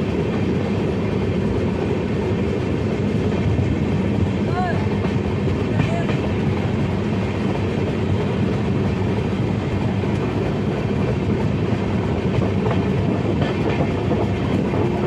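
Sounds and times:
train wheels rumbling on rails: 0.0s - 15.0s.

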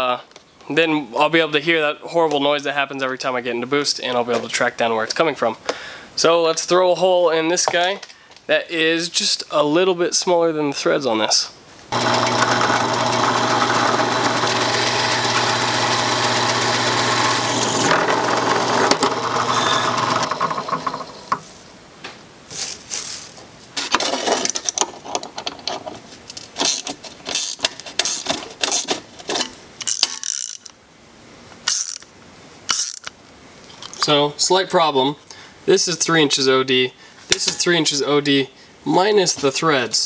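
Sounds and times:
drill press boring plastic: 11.9s - 21.4s
clicks and rattles of handling: 22.6s - 30.7s.

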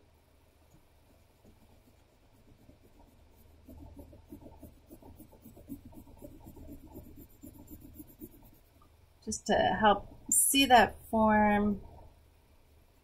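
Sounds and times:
pencil scratching on paper: 1.1s - 8.8s.

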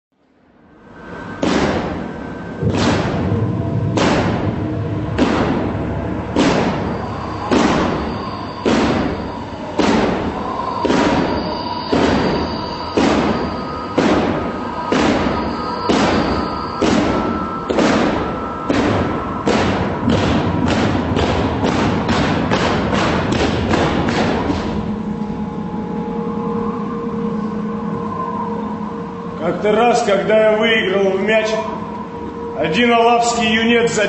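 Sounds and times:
low rumble: 0.6s - 33.1s
held tone: 0.7s - 34.0s
booming drum strikes: 1.2s - 25.5s.

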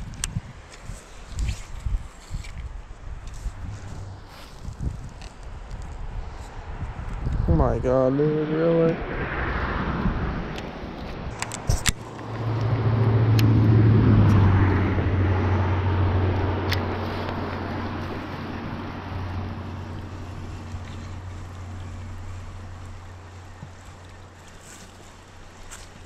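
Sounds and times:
engine droning: 7.6s - 26.0s.

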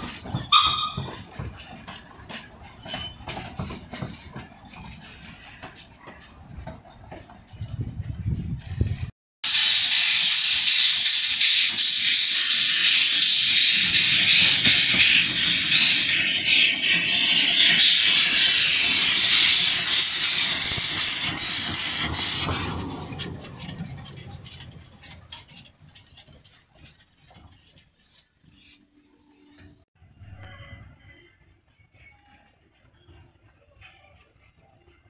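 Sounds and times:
steam locomotive blowing off steam: 0.0s - 6.4s, 8.6s - 29.8s.

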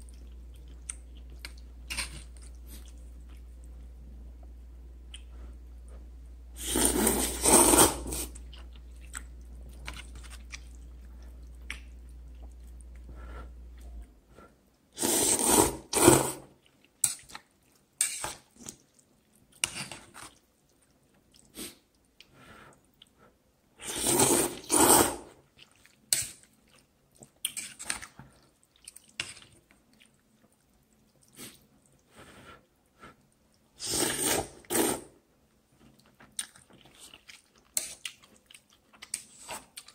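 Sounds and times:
chewing sounds: 8.2s - 13.1s, 35.8s - 39.9s
man slurping noodles: 15.0s - 16.4s, 23.8s - 25.3s, 33.8s - 35.1s.

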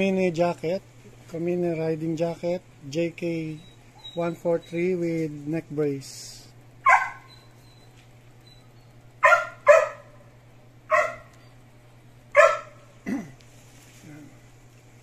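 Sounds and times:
dog barking: 6.8s - 7.5s, 9.2s - 10.3s, 10.9s - 11.4s, 12.3s - 12.9s.

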